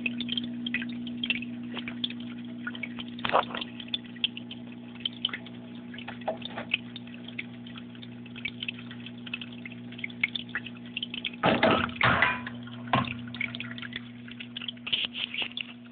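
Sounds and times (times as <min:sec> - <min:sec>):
low electrical hum: 0:00.0 - 0:15.9
lamp falling with clatter: 0:11.4 - 0:13.1.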